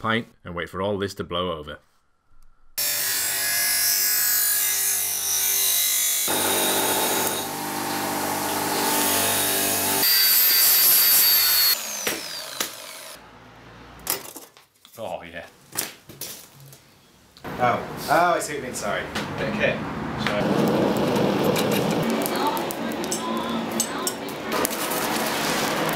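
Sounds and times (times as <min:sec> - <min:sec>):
power tool motor whine: 0:06.3 - 0:13.2.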